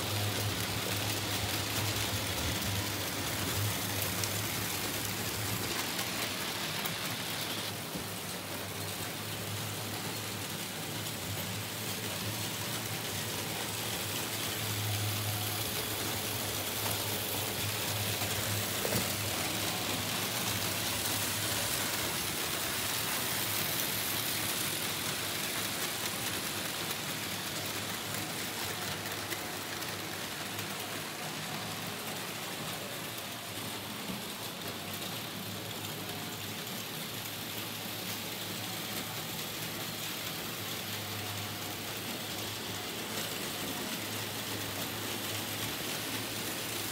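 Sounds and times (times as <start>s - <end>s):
model train wheels rattling on rails: 0.0s - 46.9s.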